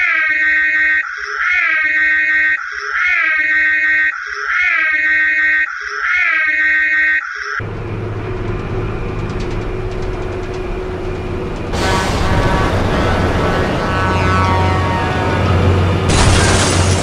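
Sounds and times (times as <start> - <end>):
car engine rumble: 7.6 - 17.0
high wavering wail: 11.8 - 15.8.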